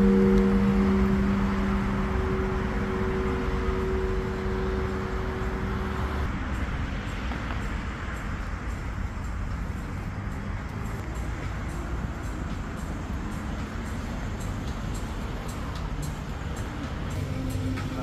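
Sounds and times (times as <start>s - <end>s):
city traffic rumble: 0.0s - 18.0s
low musical drone: 0.0s - 18.0s.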